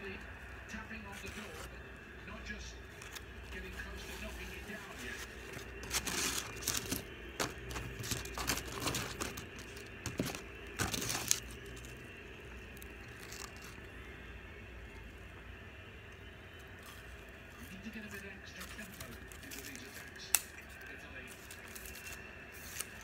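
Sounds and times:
paper wrapping crinkling: 1.0s - 1.7s, 2.8s - 12.0s, 12.6s - 13.9s, 16.8s - 23.0s.

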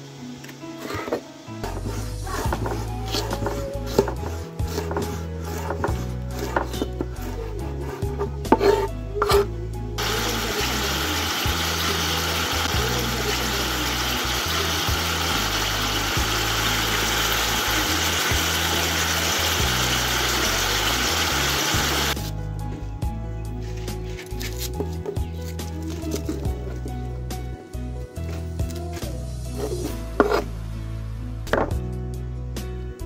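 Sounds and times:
meat sizzling in a pot: 10.0s - 22.3s.

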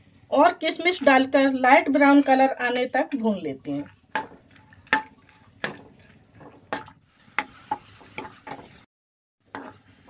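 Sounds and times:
faint sizzle of hot oil: 3.8s - 8.9s
spatula knocking and scraping pan: 4.1s - 8.8s, 9.4s - 10.0s.

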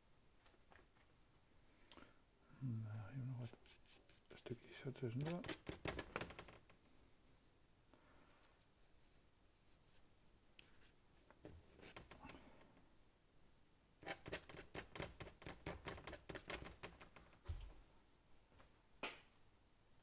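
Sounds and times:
paintbrush dabbing on paper: 3.4s - 6.4s, 11.6s - 12.3s, 14.0s - 17.1s.

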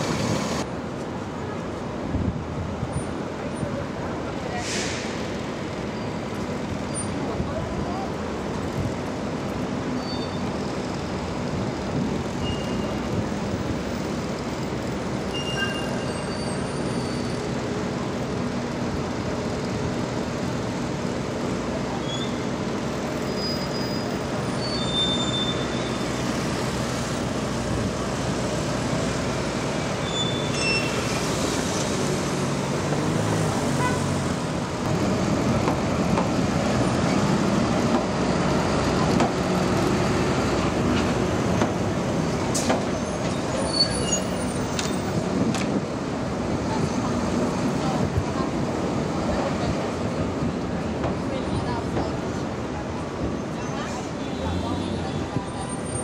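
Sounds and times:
city street traffic: 0.0s - 56.0s
short high squeaks: 12.4s - 13.0s, 15.3s - 17.4s, 23.2s - 26.2s, 30.0s - 31.2s, 42.9s - 44.9s
diesel truck engine: 16.8s - 51.0s.

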